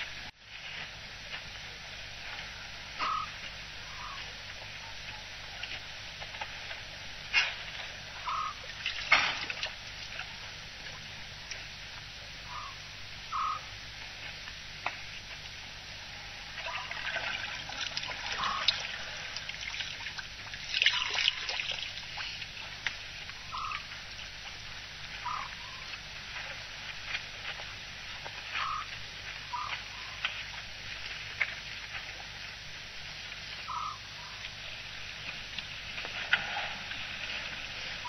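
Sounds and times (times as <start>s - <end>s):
elephant call: 2.2s - 5.8s, 7.3s - 8.7s, 12.4s - 13.8s, 16.1s - 19.5s, 23.4s - 24.1s, 25.2s - 26.6s, 28.3s - 30.4s, 33.5s - 34.8s
water trickling and splashing: 7.7s - 11.7s, 16.2s - 38.0s.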